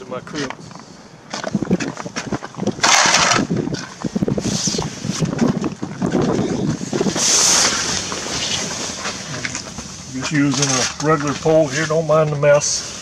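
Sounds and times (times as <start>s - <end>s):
bumps and footfalls: 1.3s - 4.4s
nylon fabric rustling and swishing: 7.0s - 9.4s.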